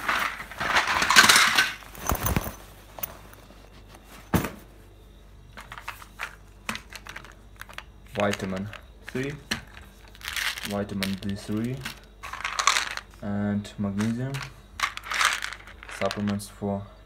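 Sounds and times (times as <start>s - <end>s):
bag rustling: 0.0s - 4.5s.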